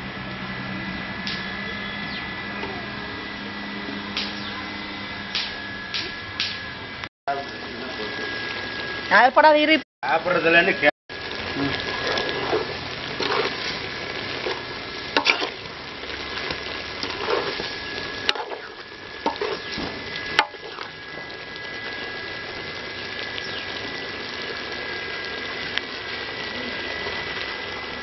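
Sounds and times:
food sizzling in a metal pan: 0:07.3 - 0:28.0.

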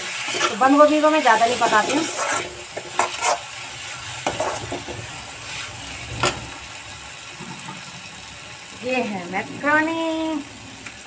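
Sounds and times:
spatula scraping and knocking pan: 0:00.0 - 0:03.6, 0:04.2 - 0:06.5
vegetables sizzling in pan: 0:00.0 - 0:11.0.

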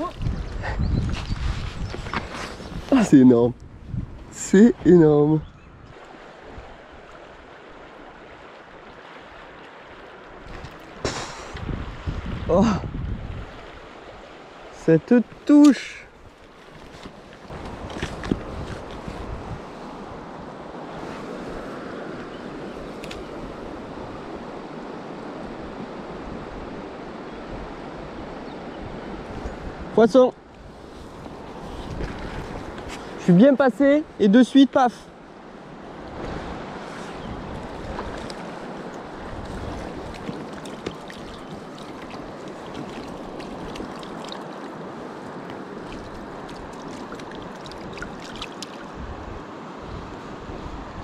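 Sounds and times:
wind buffeting microphone: 0:00.0 - 0:06.8, 0:10.4 - 0:14.3, 0:17.5 - 0:33.3, 0:35.6 - 0:51.0
river flowing over gravel: 0:36.8 - 0:49.0.

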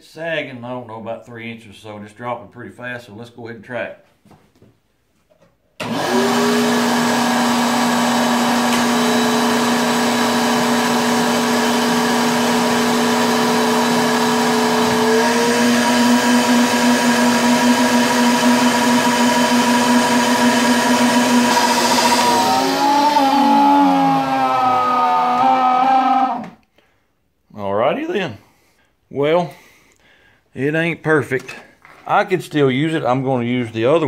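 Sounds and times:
wet dry vacuum running: 0:05.8 - 0:26.5.

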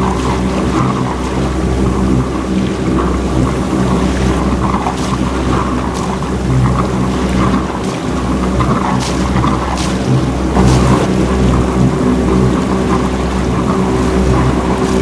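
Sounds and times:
motorboat engine humming: 0:00.0 - 0:15.0
water splashes: 0:00.0 - 0:15.0
wind buffeting microphone: 0:00.0 - 0:15.0.

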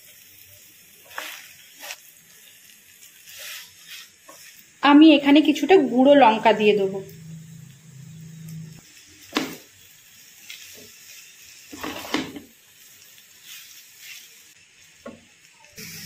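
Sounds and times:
faint steady hiss: 0:00.0 - 0:16.0
spatula scraping frying pan: 0:01.0 - 0:02.1, 0:03.1 - 0:04.7, 0:10.5 - 0:12.5.

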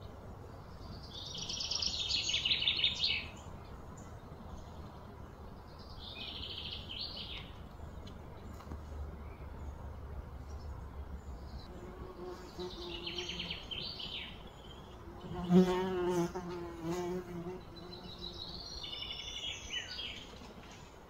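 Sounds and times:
birds chirping: 0:00.0 - 0:21.0
flying insect buzzing: 0:15.0 - 0:18.4.

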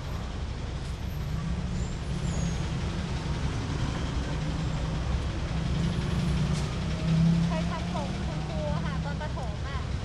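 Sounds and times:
street noise: 0:00.0 - 0:10.0.

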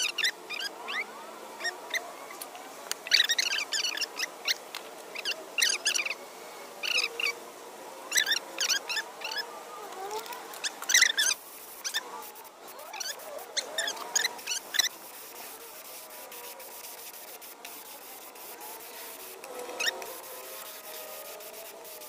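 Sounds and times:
small birds chirping: 0:03.0 - 0:06.2, 0:10.1 - 0:15.4.

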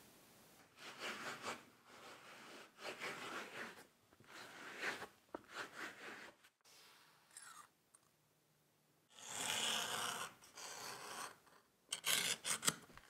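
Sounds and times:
rubbing or scraping strokes: 0:00.7 - 0:07.3.

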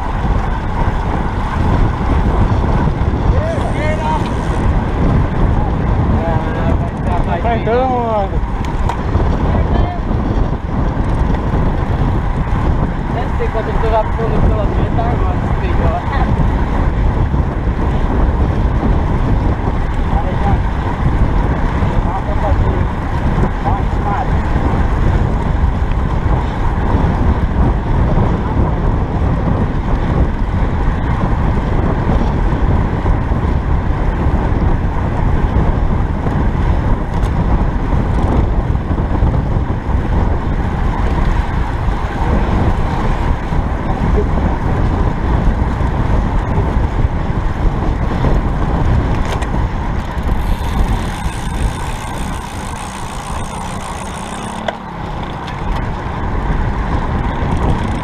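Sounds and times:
wind rumbling on microphone: 0:00.0 - 0:58.0.

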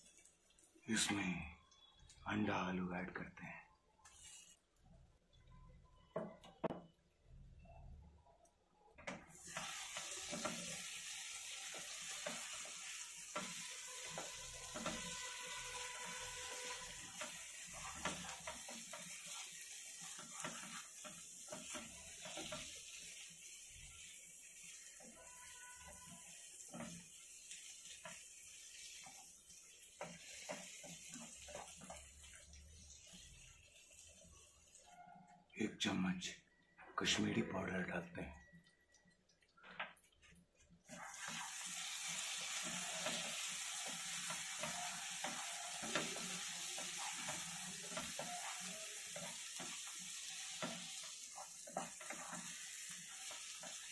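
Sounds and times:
masala sizzling in pan: 0:00.0 - 0:03.2, 0:03.9 - 0:35.6, 0:38.5 - 0:53.9
wooden spatula scraping: 0:04.0 - 0:04.8, 0:09.3 - 0:35.0, 0:40.2 - 0:53.9.

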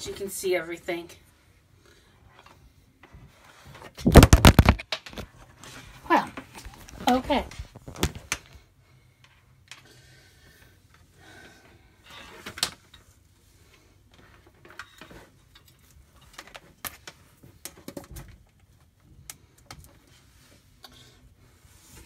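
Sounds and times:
phone handling clicks and rustles: 0:04.0 - 0:05.3.

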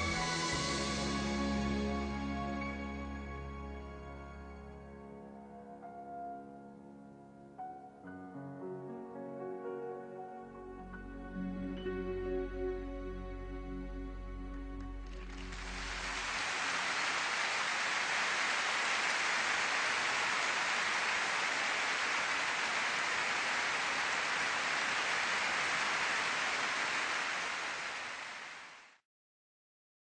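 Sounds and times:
steady rushing hiss: 0:15.3 - 0:28.9.

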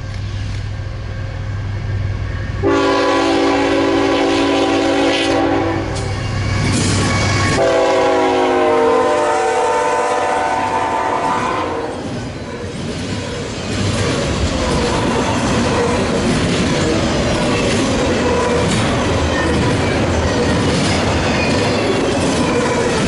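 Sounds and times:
rolling noise of passing train: 0:00.0 - 0:23.0
train air horn blasts: 0:02.6 - 0:06.1, 0:07.4 - 0:12.0.

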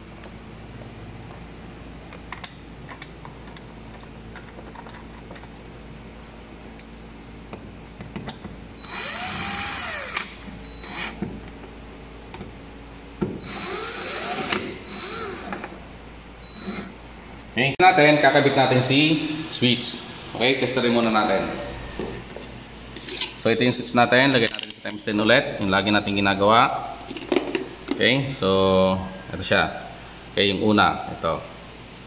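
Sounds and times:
cordless drill driving screws: 0:08.8 - 0:11.2, 0:13.4 - 0:15.8.

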